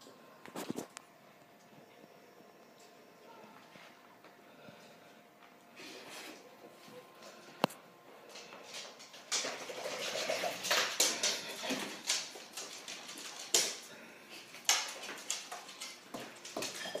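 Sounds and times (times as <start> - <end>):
dogs scuffling on floor: 8.3 - 17.0.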